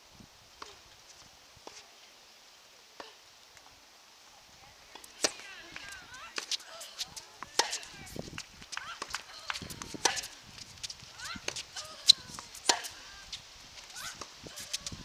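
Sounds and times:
tennis ball bouncing: 0:04.9 - 0:13.2
racket hitting tennis ball: 0:04.9 - 0:14.9.

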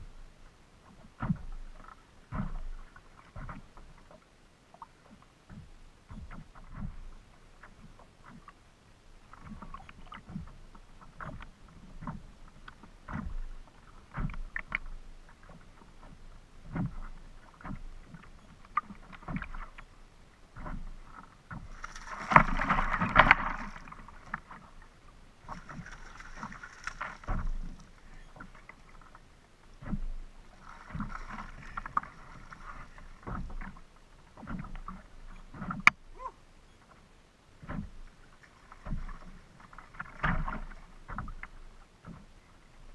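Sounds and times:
water slapping against kayak hull: 0:00.8 - 0:08.6, 0:09.2 - 0:36.2, 0:37.6 - 0:42.9
splashing water: 0:09.3 - 0:33.8.

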